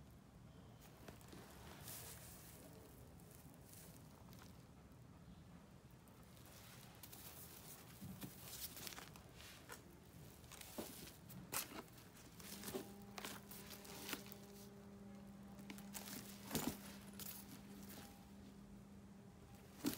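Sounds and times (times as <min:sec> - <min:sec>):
faint steady hum: 0:00.0 - 0:19.9
handbag rustling and clicking: 0:06.4 - 0:18.4, 0:19.6 - 0:19.9.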